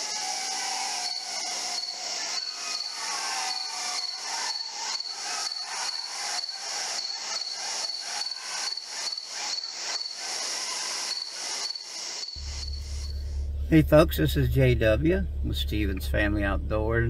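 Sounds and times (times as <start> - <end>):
insects chirping: 0.0 - 13.4.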